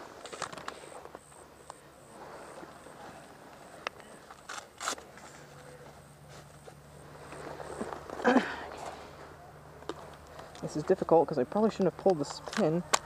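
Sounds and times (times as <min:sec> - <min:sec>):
rustling on dry leaves: 0:02.2 - 0:11.0.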